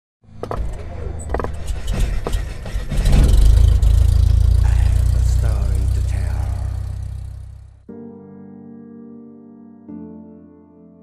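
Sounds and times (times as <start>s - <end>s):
deep steady rumble: 0.8s - 7.9s.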